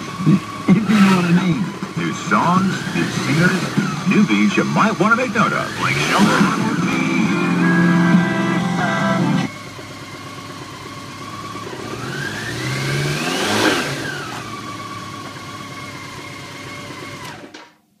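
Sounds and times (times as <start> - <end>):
motorcycle engine idling and revving: 0.0 - 17.7.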